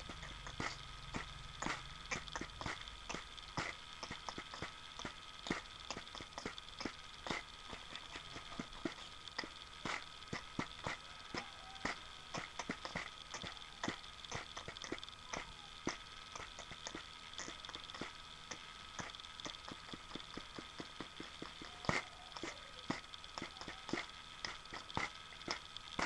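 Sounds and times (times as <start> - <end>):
faint steady hum: 0.0 - 26.0
mouth clicks and pops: 0.0 - 26.0.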